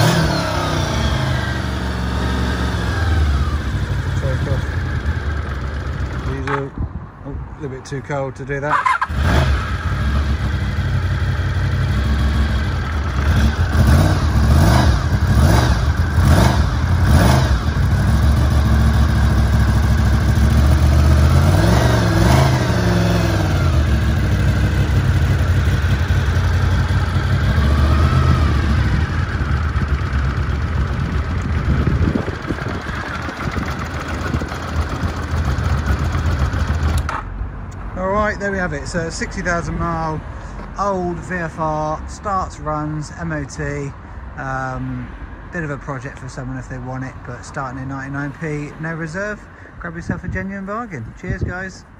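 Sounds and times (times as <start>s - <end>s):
motorcycle engine idling and revving: 0.0s - 51.9s.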